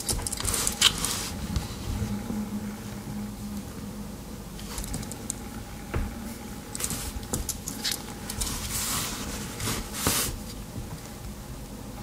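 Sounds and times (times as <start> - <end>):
scraping and rustling: 6.8 - 10.6.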